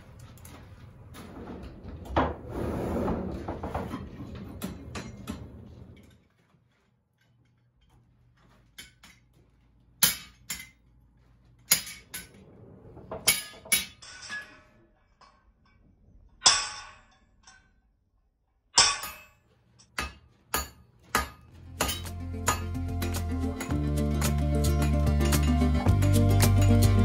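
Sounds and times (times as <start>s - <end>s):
hammer striking iron on anvil: 10.0s - 10.8s, 16.4s - 17.6s, 18.8s - 25.6s.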